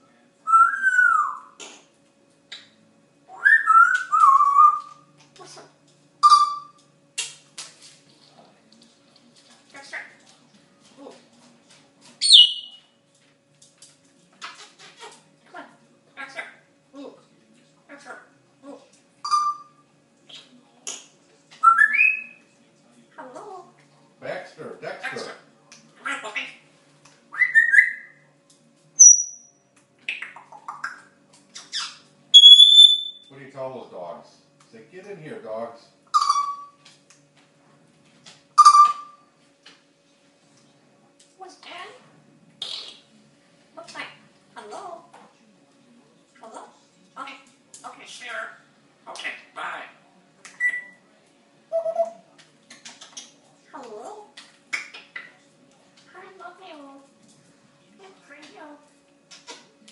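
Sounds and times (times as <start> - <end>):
parrot whistling: 0.5 - 1.6, 3.3 - 5.0, 6.2 - 6.8, 12.2 - 12.8, 19.2 - 19.8, 21.6 - 22.4, 27.3 - 28.2, 29.0 - 29.5, 31.6 - 33.3, 36.1 - 36.8, 38.6 - 39.2, 50.5 - 51.0, 51.7 - 52.2.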